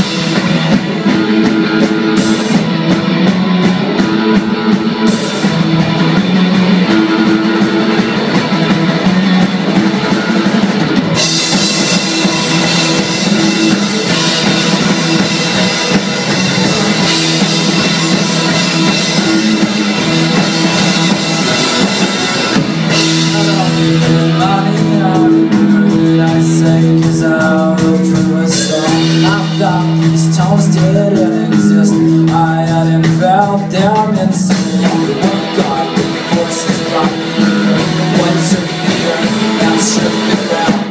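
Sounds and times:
bass guitar: 0.0s - 40.9s
drum kit: 0.0s - 40.9s
electric guitars: 0.0s - 40.9s.

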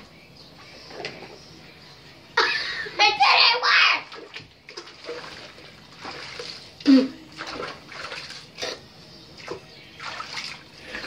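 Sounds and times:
bathwater splashing: 3.8s - 8.8s, 9.4s - 11.0s.

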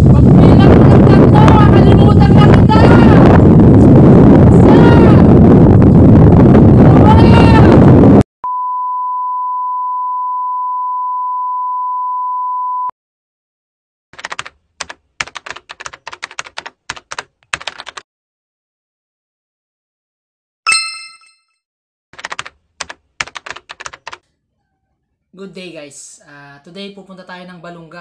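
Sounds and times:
wind blasting on microphone: 0.0s - 8.2s
man yelling: 0.6s - 3.3s, 4.6s - 5.3s
keyboard typing clicks: 22.2s - 24.2s.

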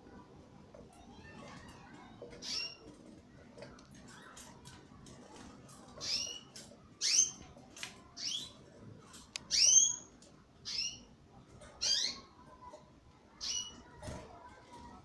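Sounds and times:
canaries chirping: 2.3s - 3.0s, 4.0s - 12.7s, 13.3s - 14.0s.

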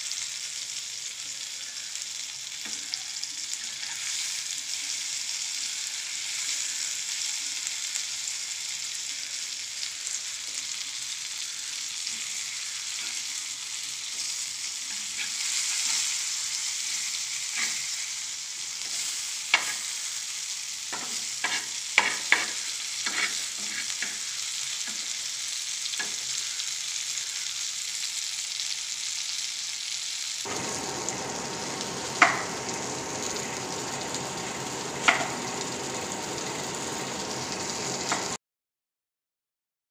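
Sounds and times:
fish sizzling in oil: 0.0s - 38.4s
steel spatula scraping pan: 21.0s - 24.1s.

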